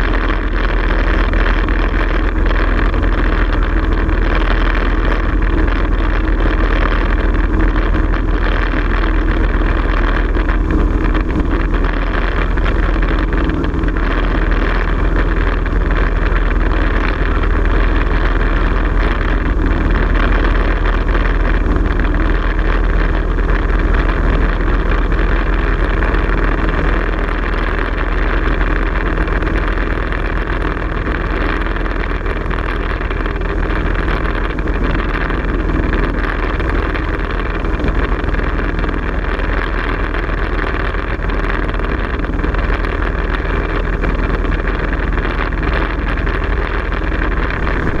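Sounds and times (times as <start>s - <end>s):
propeller aircraft engine drone: 0.0s - 48.0s
air rushing past: 47.4s - 48.0s.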